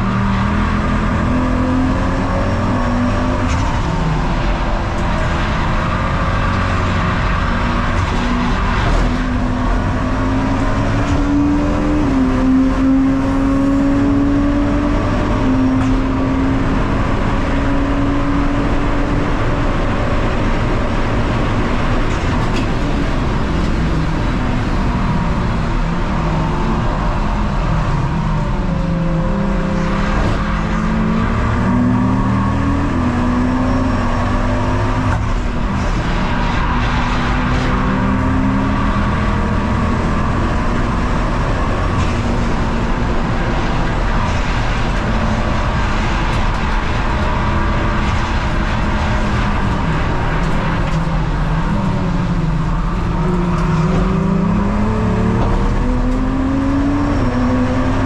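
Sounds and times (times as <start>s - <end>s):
race car engine running hard: 0.0s - 58.0s
road and wind noise: 0.0s - 58.0s.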